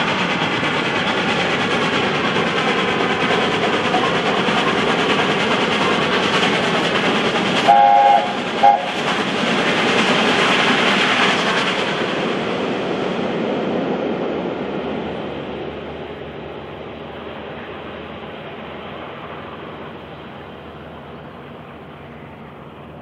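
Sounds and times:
train rolling on rails: 0:00.0 - 0:23.0
steam locomotive chime whistle: 0:07.6 - 0:09.0.

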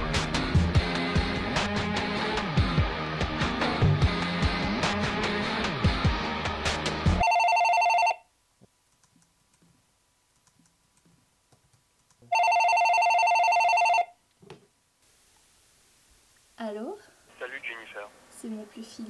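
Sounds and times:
cordless phone electronic warbling ring: 0:07.2 - 0:08.2, 0:12.4 - 0:14.1.

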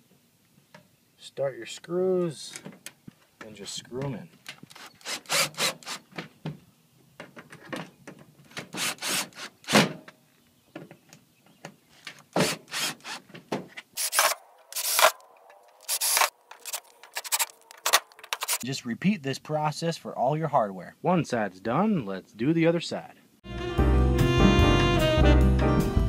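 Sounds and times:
cordless drill driving screws: 0:04.6 - 0:06.1, 0:08.6 - 0:09.8, 0:12.4 - 0:13.2, 0:14.0 - 0:15.2, 0:15.8 - 0:18.6.

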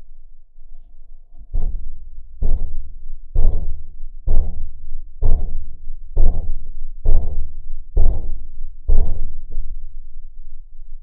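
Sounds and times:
knocking on rusted steel body: 0:02.4 - 0:02.8, 0:03.4 - 0:04.6.

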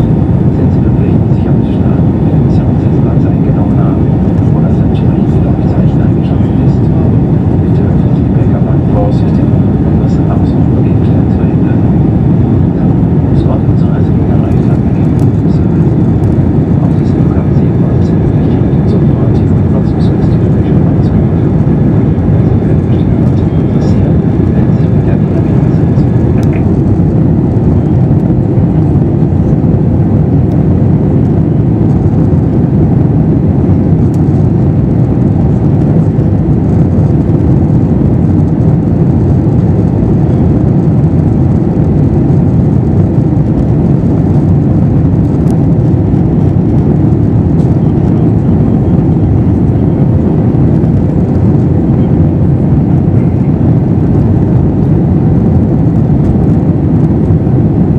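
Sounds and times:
aircraft engines droning: 0:00.0 - 0:57.9.

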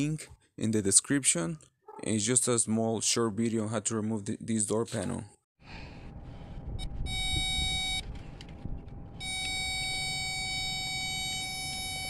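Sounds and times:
circuit tester buzzing tone: 0:09.2 - 0:12.0.

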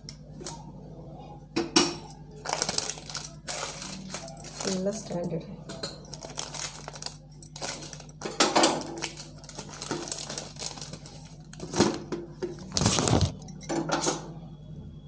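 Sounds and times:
paper rustling and crinkling: 0:02.4 - 0:05.1, 0:06.1 - 0:12.0, 0:12.6 - 0:13.4.

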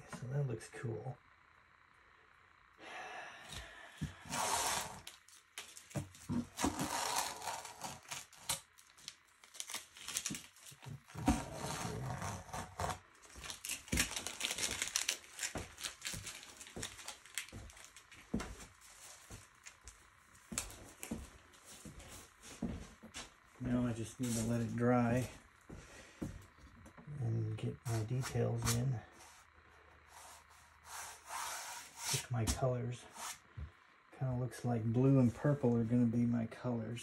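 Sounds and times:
crinkling and rustling: 0:04.6 - 0:24.9.

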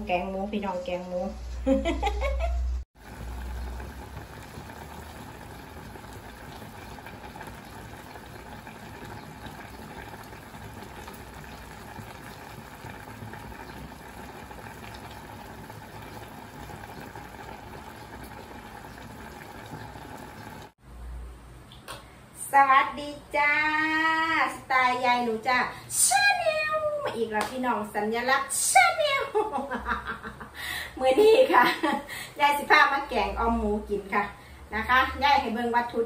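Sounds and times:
curry bubbling in saucepan: 0:03.0 - 0:20.8.

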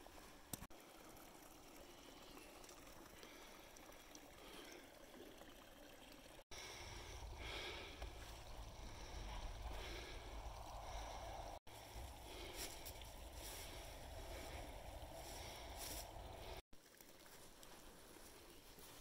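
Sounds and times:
steady low rumble: 0:06.6 - 0:16.6.

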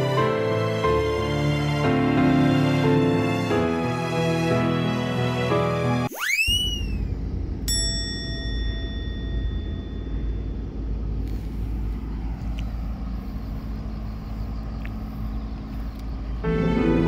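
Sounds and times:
high tone with overtones: 0:06.1 - 0:10.8
low outdoor rumble: 0:06.8 - 0:17.0.

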